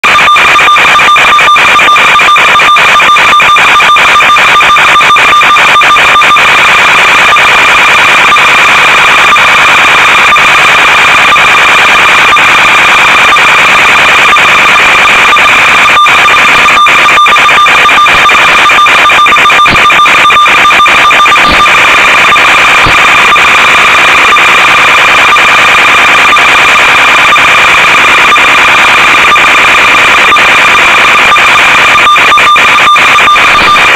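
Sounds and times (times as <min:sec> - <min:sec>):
radio static buzzing: 0:00.0 - 0:33.9
crackling clicks: 0:13.6 - 0:24.6.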